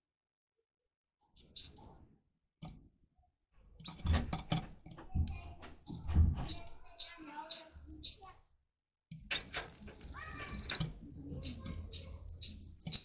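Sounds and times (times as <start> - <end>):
canary chirping: 1.2 - 2.0, 5.3 - 8.4, 9.4 - 13.0
bird rustling and knocking in cage: 3.8 - 6.8.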